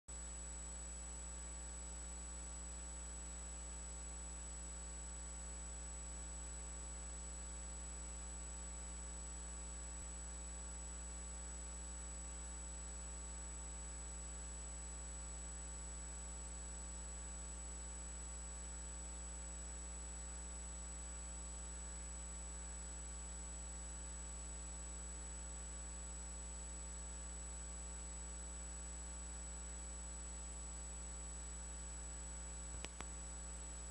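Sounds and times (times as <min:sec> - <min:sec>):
electrical mains hum: 0:00.1 - 0:33.9.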